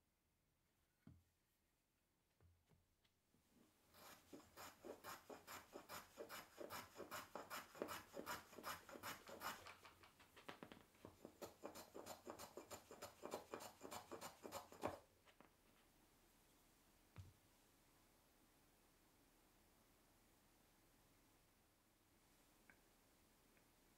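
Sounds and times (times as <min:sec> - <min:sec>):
hand plane shaving wood: 0:03.9 - 0:09.8, 0:11.2 - 0:15.0.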